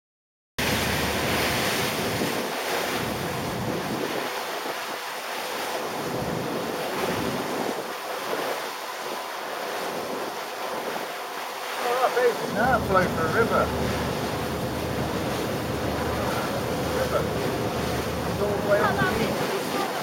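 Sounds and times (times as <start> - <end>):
motor boat wake rushing: 0.6 - 20.0
wind buffeting microphone: 0.7 - 5.1, 5.8 - 11.2, 12.4 - 20.0.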